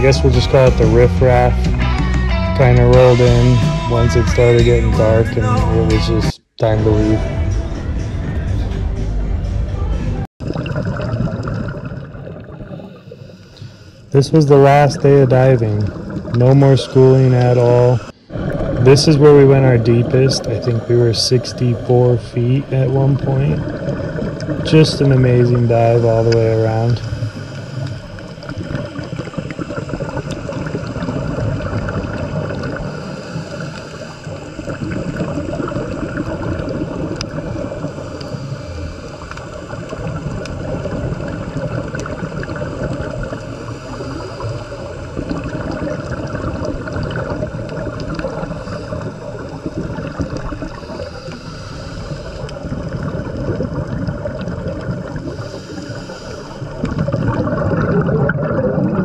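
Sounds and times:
exhaled bubbles underwater: 0:10.4 - 0:59.0
scuba regulator breathing: 0:12.7 - 0:14.2, 0:26.7 - 0:36.0, 0:36.6 - 0:53.3, 0:55.0 - 0:57.3.

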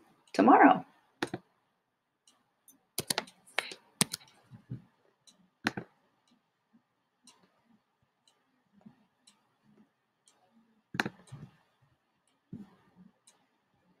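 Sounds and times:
bursts of clicking: 0:03.0 - 0:04.4.

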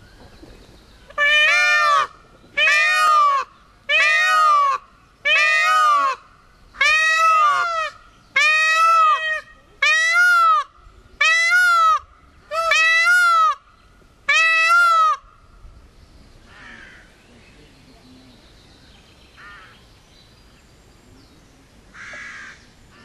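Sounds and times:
peacock screaming call: 0:01.1 - 0:13.7, 0:14.3 - 0:15.4.

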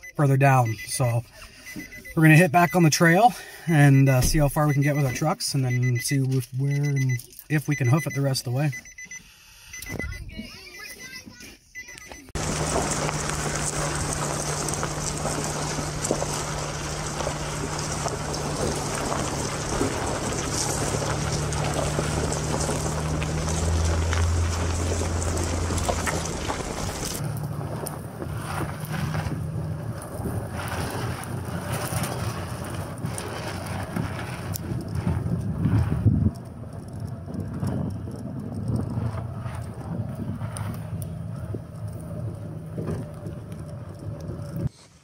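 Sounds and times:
tyres on gravel: 0:10.3 - 0:44.8
engine drone: 0:12.4 - 0:44.7
wind on microphone: 0:33.2 - 0:41.7.

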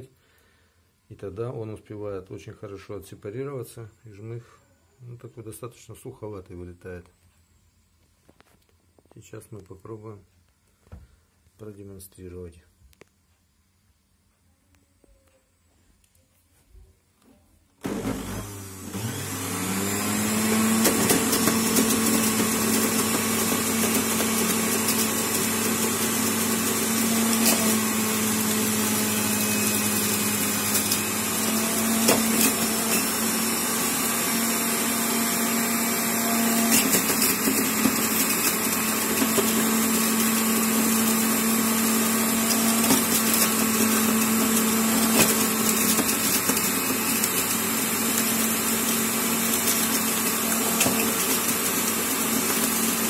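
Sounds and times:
juicer motor humming: 0:17.8 - 0:53.0.

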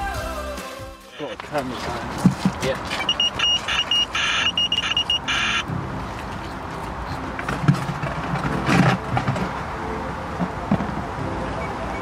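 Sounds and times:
handling noises: 0:01.3 - 0:09.8
electronic bite alarm tone: 0:03.1 - 0:05.6.

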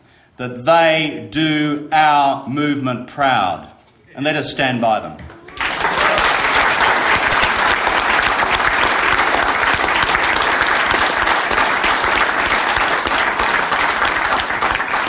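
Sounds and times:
crowd applauding: 0:05.2 - 0:15.0.

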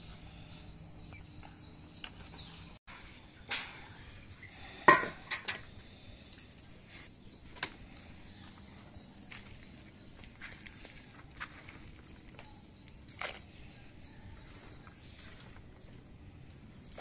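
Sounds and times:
metal bucket clanking against well: 0:03.5 - 0:05.7.

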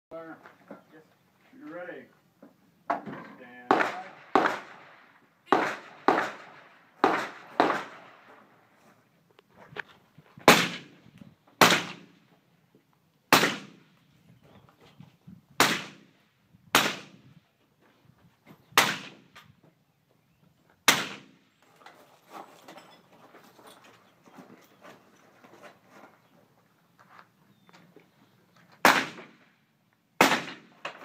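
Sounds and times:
rifle shots: 0:03.7 - 0:08.3, 0:10.4 - 0:11.0, 0:11.6 - 0:12.2, 0:13.3 - 0:13.8, 0:15.6 - 0:16.1, 0:16.7 - 0:17.2, 0:18.8 - 0:19.3, 0:20.8 - 0:21.4, 0:28.8 - 0:29.4, 0:30.2 - 0:31.0.

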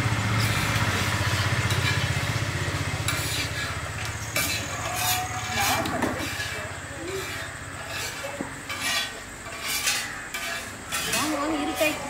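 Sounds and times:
small engine humming: 0:00.0 - 0:05.8
metal spatula scraping iron pan: 0:01.6 - 0:02.2, 0:03.0 - 0:12.0.

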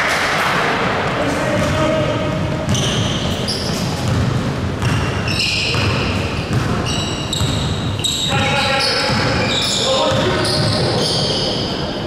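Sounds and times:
gym hall noise: 0:00.0 - 0:12.0
basketball bouncing: 0:01.0 - 0:08.2, 0:09.0 - 0:10.9
sneaker squeaks: 0:02.6 - 0:12.0.

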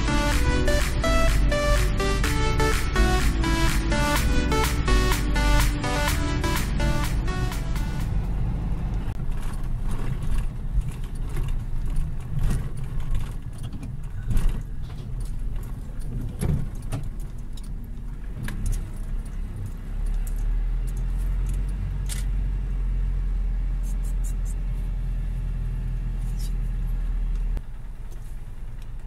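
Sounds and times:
truck engine and road rumble: 0:00.0 - 0:29.0
cab rattling and knocking: 0:09.2 - 0:19.2.

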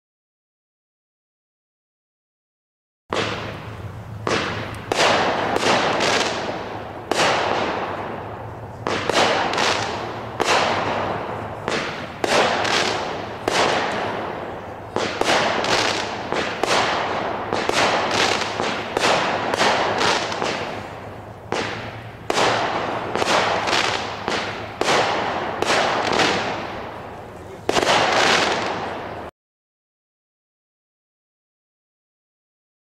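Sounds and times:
fireworks cake shots banging: 0:03.1 - 0:29.3.

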